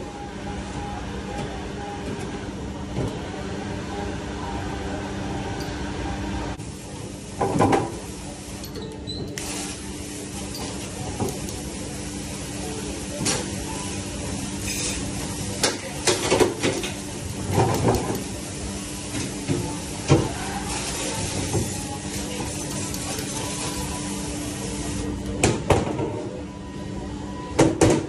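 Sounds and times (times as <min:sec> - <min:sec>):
spray valve hissing water: 0:09.4 - 0:12.5.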